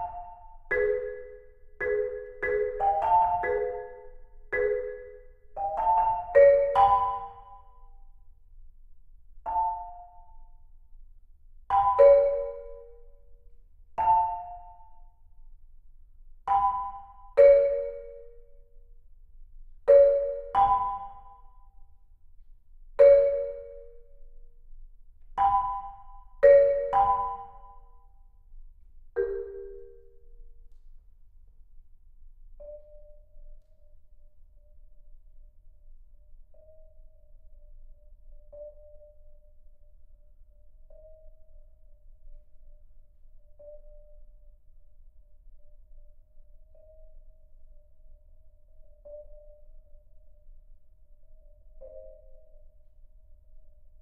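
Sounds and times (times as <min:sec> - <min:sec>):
marimba chords: 0:00.0 - 0:07.4, 0:25.4 - 0:27.8, 0:29.2 - 0:30.2.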